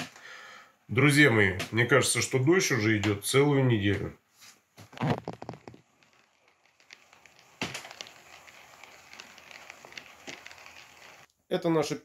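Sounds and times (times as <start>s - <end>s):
steady hiss with fine crackles: 0.0s - 12.0s
crackling and rustling: 4.4s - 11.3s.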